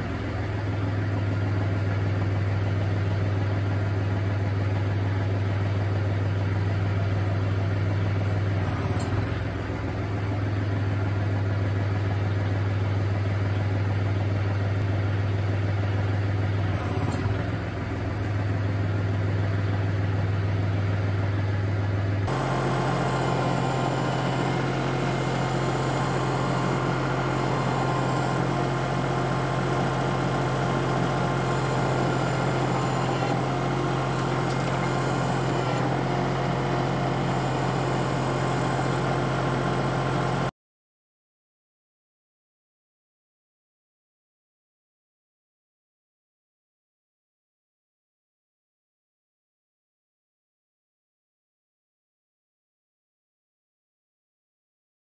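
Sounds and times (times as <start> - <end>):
tractor diesel engine running: 0.0 - 40.5.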